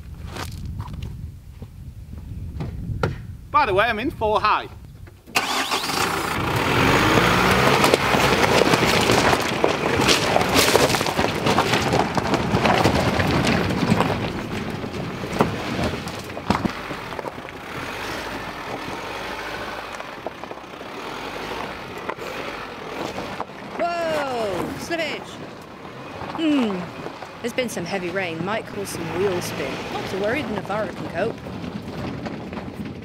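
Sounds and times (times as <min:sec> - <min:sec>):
diesel engine running: 0:05.3 - 0:32.8
tyres crunching on stones: 0:06.4 - 0:33.0
stones knocking: 0:07.0 - 0:33.0.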